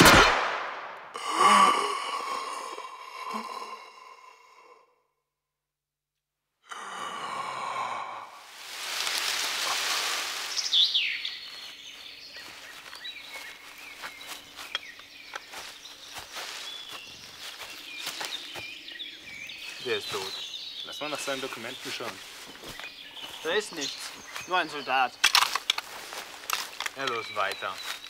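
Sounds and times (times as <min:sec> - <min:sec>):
man sighing heavily: 0:01.1 - 0:05.0, 0:06.6 - 0:08.5
birds chirping: 0:06.7 - 0:28.0
rustling in grass: 0:08.4 - 0:28.0.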